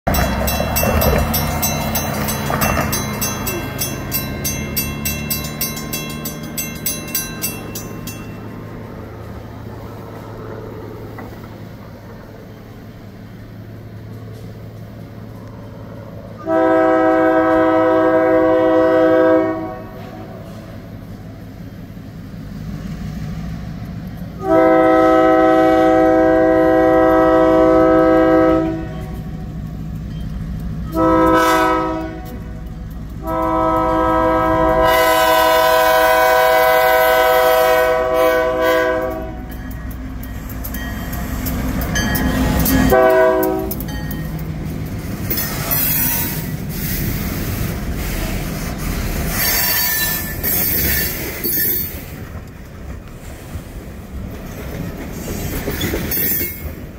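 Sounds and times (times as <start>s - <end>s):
locomotive engine rumble: 0.0s - 56.9s
train wheels clacking on rails: 0.1s - 12.4s, 25.8s - 56.9s
train air horn blasts: 16.4s - 20.6s, 24.4s - 29.3s, 30.9s - 32.6s, 33.2s - 39.5s, 42.6s - 43.8s
train wheels squealing: 45.2s - 52.2s, 55.0s - 56.9s.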